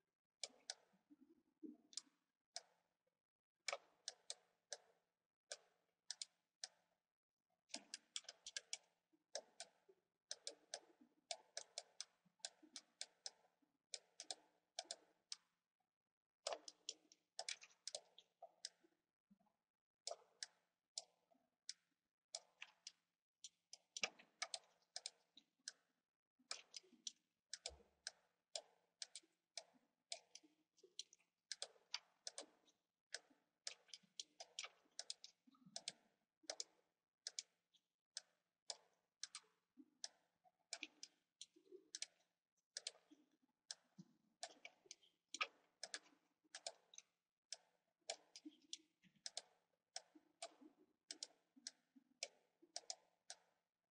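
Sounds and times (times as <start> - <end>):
faint computer mouse clicks: 26.5 - 37.5, 38.2 - 42.2, 42.8 - 53.5.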